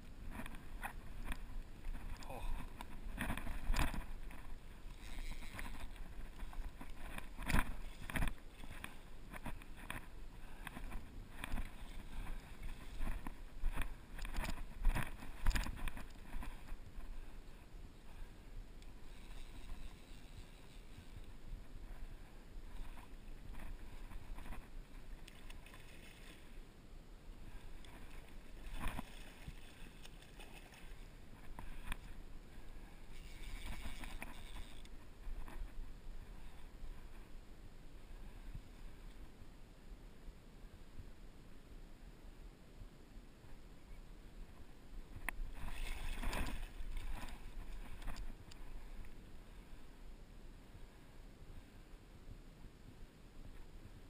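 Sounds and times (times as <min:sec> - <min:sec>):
wind rumbling on microphone: 0:00.0 - 0:39.5
flowing river water: 0:00.0 - 0:41.7, 0:43.0 - 0:54.0.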